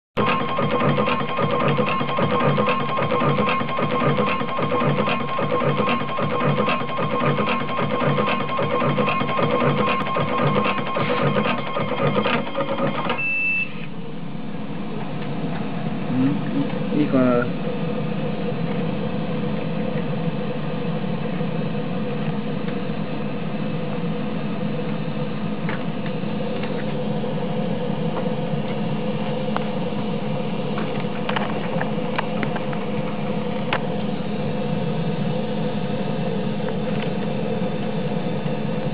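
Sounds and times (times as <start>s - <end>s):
machine humming: 0.2s - 13.2s.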